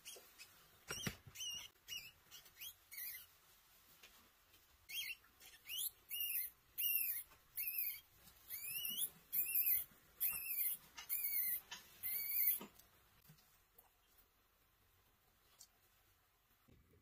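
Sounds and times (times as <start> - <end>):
mouse squeaking: 0.0 - 3.3, 4.8 - 12.7.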